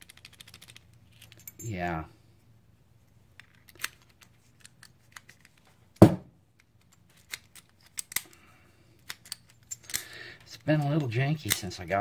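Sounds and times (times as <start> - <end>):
padlock and keys clicking: 0.0 - 1.7, 3.4 - 5.6, 6.5 - 8.4, 9.0 - 11.8
knock: 6.0 - 6.3.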